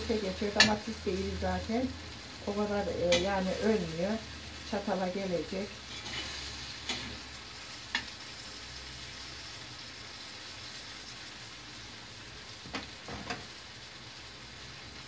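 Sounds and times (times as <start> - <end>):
vegetables sizzling in oil: 0.0 - 15.0
utensil clicking on pan: 0.4 - 0.9, 3.0 - 3.6, 7.9 - 8.2.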